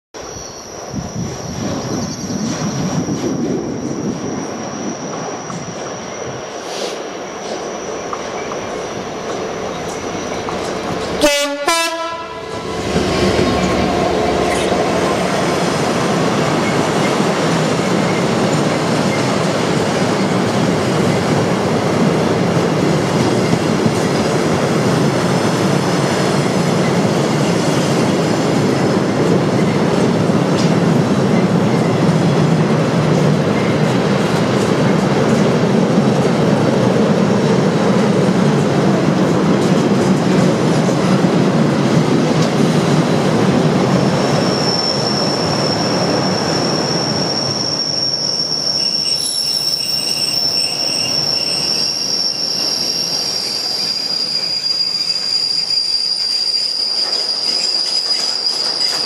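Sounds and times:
train wheel clatter: 0:01.2 - 0:11.3, 0:12.6 - 0:59.0
locomotive horn blasts: 0:11.2 - 0:12.7.

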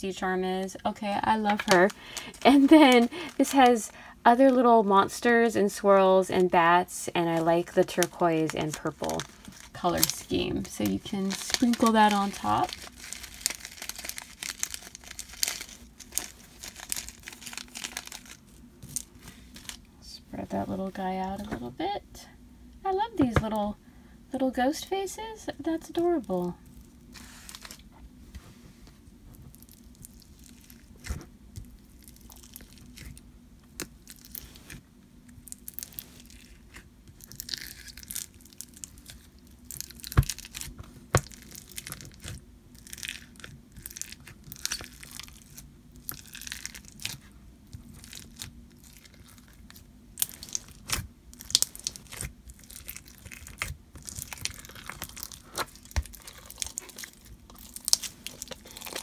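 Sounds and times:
crunchy slime crackling and popping: 0:07.3 - 0:19.8, 0:29.4 - 0:59.0.

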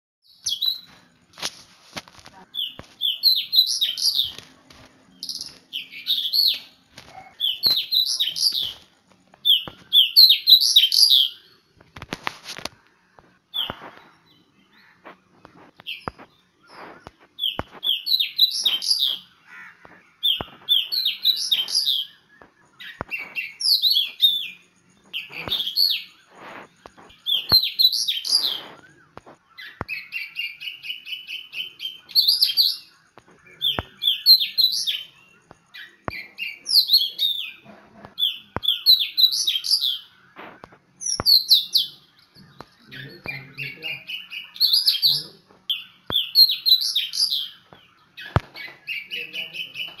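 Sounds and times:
songbird singing: 0:00.2 - 0:50.0.

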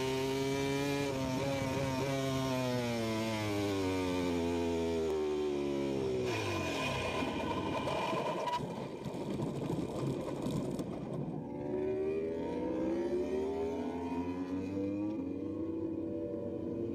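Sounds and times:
motorcycle engine at high revs: 0:00.0 - 0:08.5, 0:11.6 - 0:16.9
motorcycle scraping along ground: 0:00.0 - 0:11.0.

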